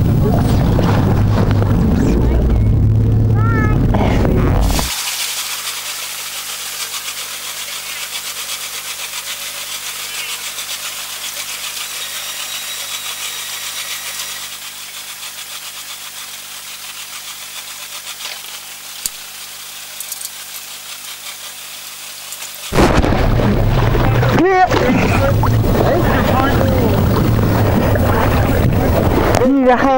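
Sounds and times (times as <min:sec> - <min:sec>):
outboard engines buzzing: 0:00.0 - 0:29.9
person speaking: 0:01.9 - 0:04.9.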